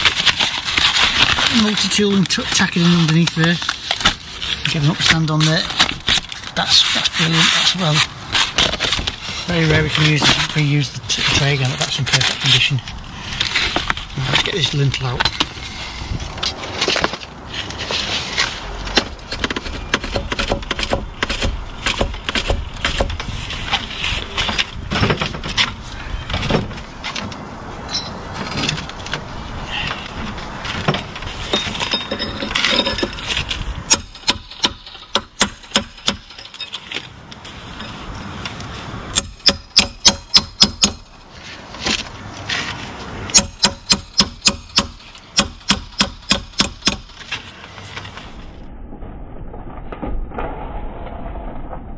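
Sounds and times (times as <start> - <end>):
metal scraping against brick: 27.8 - 38.5.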